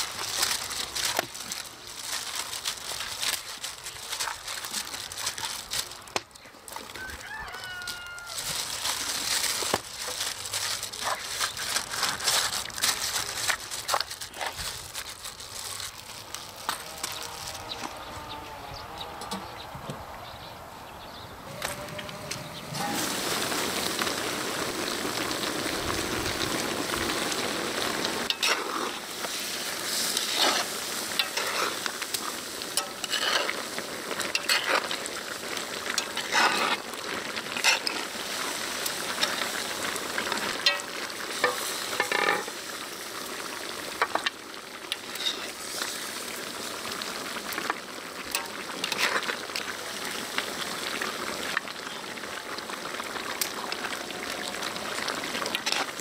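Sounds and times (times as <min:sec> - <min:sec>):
meat sizzling and bubbling in pot: 0:00.0 - 0:18.4, 0:21.5 - 0:56.0
metal tongs scraping pot: 0:28.3 - 0:29.0, 0:30.0 - 0:35.0, 0:35.8 - 0:36.8, 0:37.5 - 0:38.1, 0:40.6 - 0:42.6, 0:44.9 - 0:45.6, 0:48.3 - 0:49.7.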